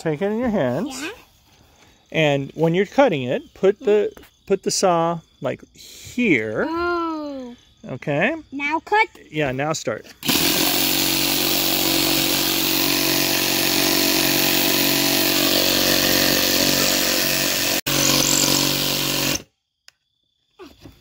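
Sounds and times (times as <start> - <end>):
reciprocating saw cutting wood: 10.2 - 19.5.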